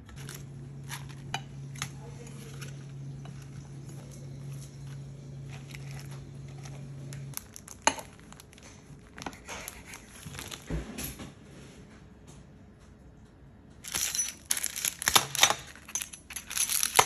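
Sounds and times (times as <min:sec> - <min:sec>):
salad leaves rustling: 0:00.0 - 0:08.6
low steady hum: 0:00.0 - 0:17.0.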